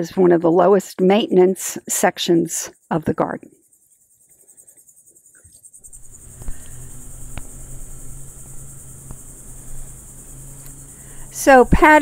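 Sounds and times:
insects chirping trill: 0.0s - 12.0s
low hum: 5.8s - 12.0s.

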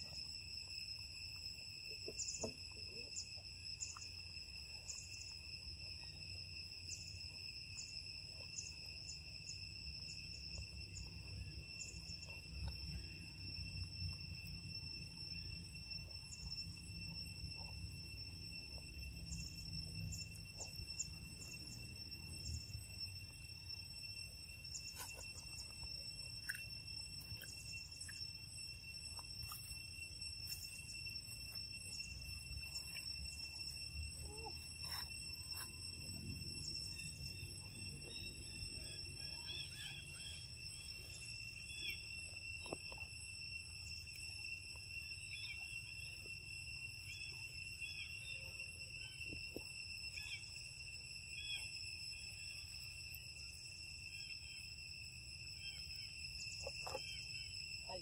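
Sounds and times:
monkey eating with soft clicks: 0.0s - 9.7s, 10.5s - 22.1s, 24.8s - 31.8s, 56.6s - 57.2s
high insect trilling: 0.0s - 58.0s.

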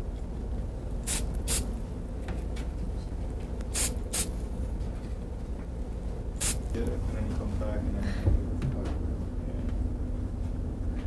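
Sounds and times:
steady low hum: 0.0s - 11.0s
aerosol can spraying: 1.0s - 1.7s, 3.7s - 4.4s, 6.4s - 6.7s.

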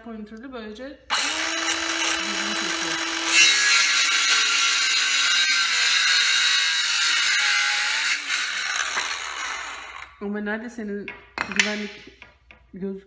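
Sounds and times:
circular saw cutting wood: 1.1s - 10.2s.

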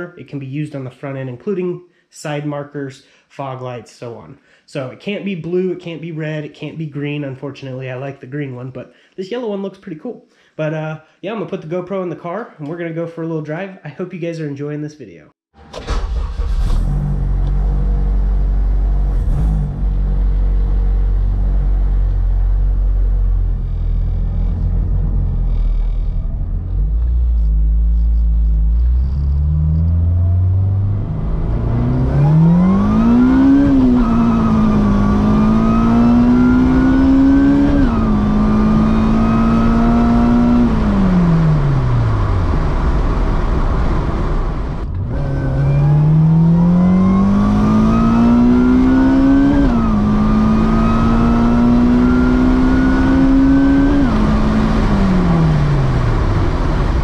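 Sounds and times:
car engine revving: 15.6s - 57.0s.

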